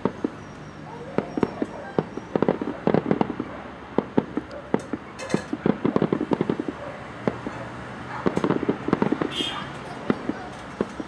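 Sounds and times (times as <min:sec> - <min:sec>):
fireworks bangs and crackling pops: 0:00.0 - 0:11.0.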